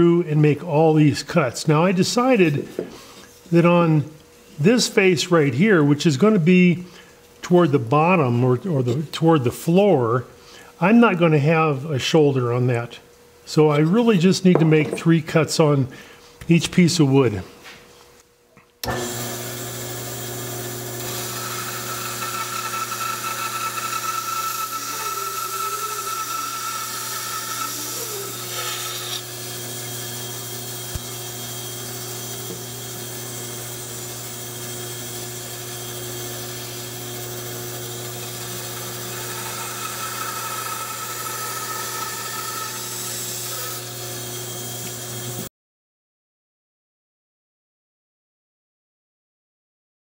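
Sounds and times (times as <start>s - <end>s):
bandsaw blade cutting wood: 18.8s - 45.5s
bandsaw motor humming: 18.8s - 45.5s.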